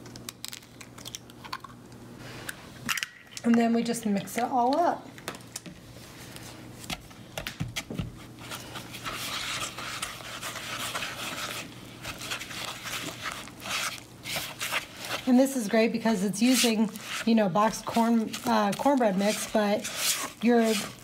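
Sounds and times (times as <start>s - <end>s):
spatula stirring batter: 8.1s - 21.0s.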